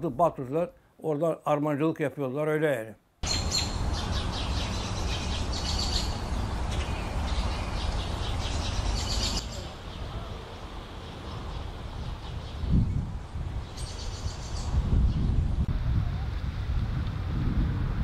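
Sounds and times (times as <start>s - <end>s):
small birds chirping: 3.2s - 15.4s
wind rumble on microphone: 3.6s - 18.0s.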